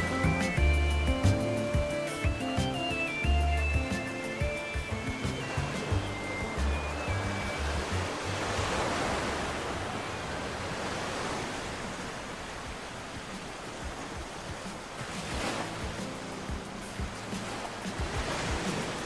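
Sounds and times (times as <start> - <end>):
small waves breaking on beach: 4.0 - 19.0.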